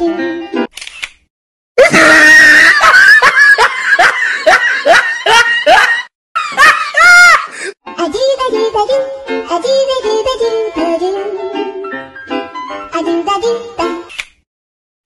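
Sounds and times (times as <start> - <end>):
person screaming: 1.8 - 3.1, 6.8 - 7.7
shrieking laugh-like bursts: 1.8 - 7.6.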